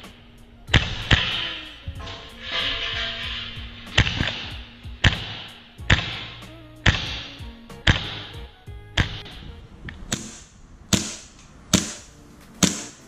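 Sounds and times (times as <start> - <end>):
faint background music: 0.0 - 13.0
airsoft pistol shots: 0.7 - 1.8, 3.9 - 8.4, 9.0 - 9.4, 10.1 - 13.0.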